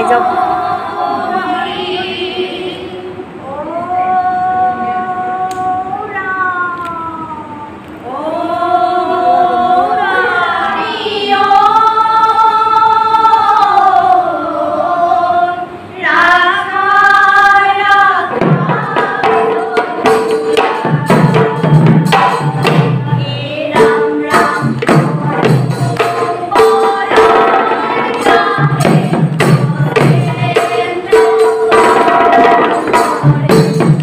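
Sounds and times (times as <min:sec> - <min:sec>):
women singing a devotional chant: 0:00.0 - 0:06.7, 0:08.0 - 0:34.0
hand percussion: 0:17.8 - 0:34.0
barrel drum beat: 0:18.2 - 0:34.0.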